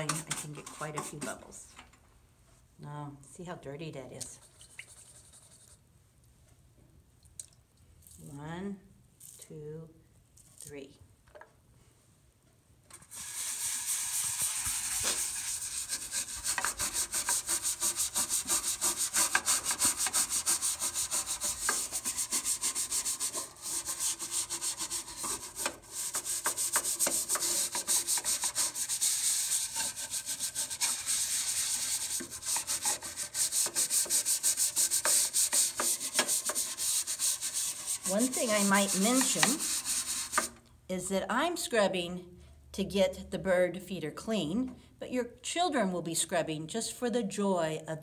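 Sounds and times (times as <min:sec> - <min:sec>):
scrub brush scrubbing: 0:13.1 - 0:40.6.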